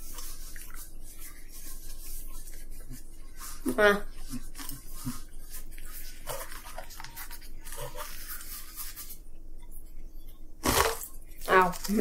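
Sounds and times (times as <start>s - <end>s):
paper wrapper rustling: 3.4s - 9.2s
chewing and crunching fried chicken: 3.6s - 8.7s, 10.6s - 12.0s.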